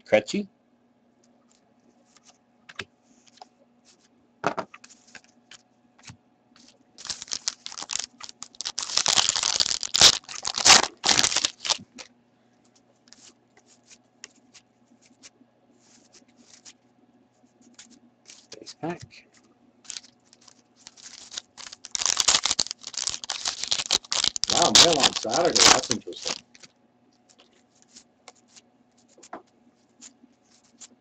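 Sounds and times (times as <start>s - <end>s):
foil wrapper tearing and crinkling: 6.6s - 12.0s, 19.8s - 26.7s
cards clicking and flicking: 19.9s - 26.4s.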